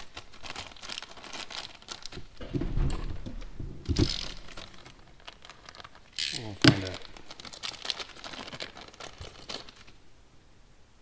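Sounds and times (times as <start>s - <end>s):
metal washers clinking: 0.0s - 10.0s
plastic bags rustling: 0.0s - 10.0s
low hum: 2.4s - 5.3s.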